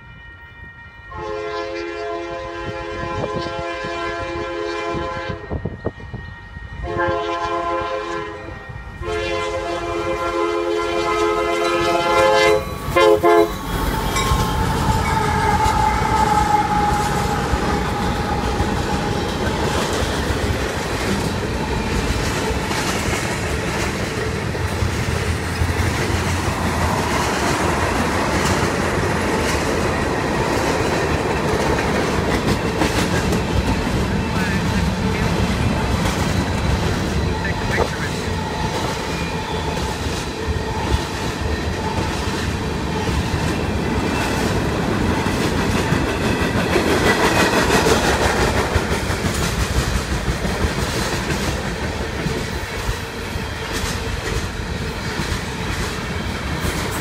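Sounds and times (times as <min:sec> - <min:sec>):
locomotive air horn blasts: 0:00.0 - 0:14.2, 0:14.8 - 0:19.2
diesel locomotive passing: 0:00.0 - 0:57.0
train wheel clatter: 0:11.6 - 0:57.0.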